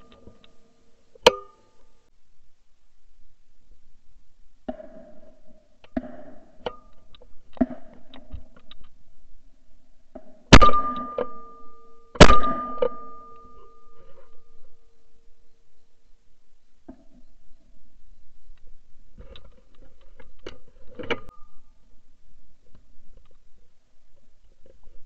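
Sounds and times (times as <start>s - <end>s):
shotgun shots with ringing: 10.5s - 11.2s, 12.2s - 13.2s.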